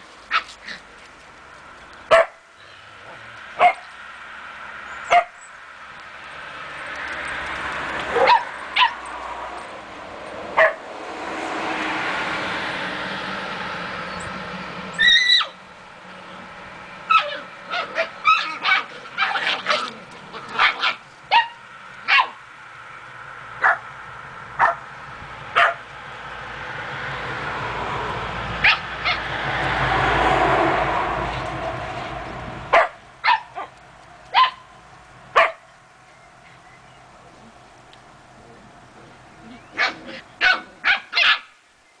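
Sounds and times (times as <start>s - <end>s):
puppies yipping and barking: 0.2s - 1.0s, 5.0s - 5.5s, 8.0s - 9.2s, 10.6s - 10.8s, 14.1s - 15.6s, 17.0s - 22.4s, 28.6s - 29.4s, 32.7s - 34.7s, 38.5s - 41.6s
puppy drawn-out yelp: 0.3s - 0.8s, 2.1s - 2.4s, 5.1s - 5.4s, 8.1s - 9.1s, 10.6s - 10.8s, 14.9s - 15.6s, 17.1s - 22.4s, 24.6s - 24.8s, 28.6s - 29.3s, 32.7s - 34.7s, 39.5s - 41.6s.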